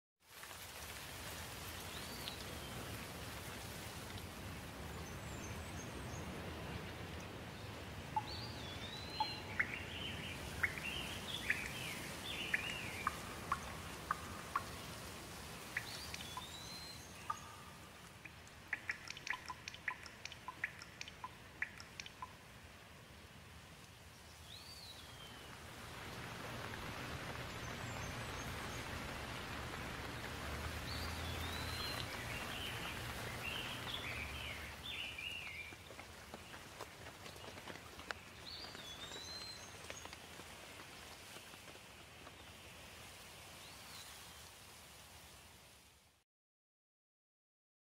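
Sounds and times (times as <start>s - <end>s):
steady rain falling: 0.2s - 46.2s
birds chirping: 4.9s - 22.5s, 24.2s - 40.4s
water drops ticking: 8.1s - 14.9s, 15.7s - 22.4s, 26.7s - 35.6s.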